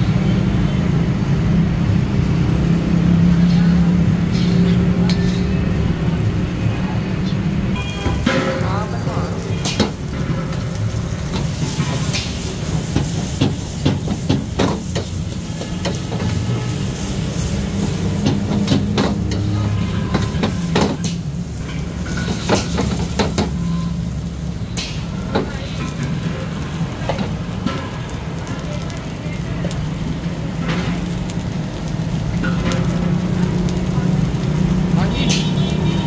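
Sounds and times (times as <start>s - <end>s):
gas burner rushing: 0.0s - 36.0s
vegetables sizzling: 7.7s - 36.0s.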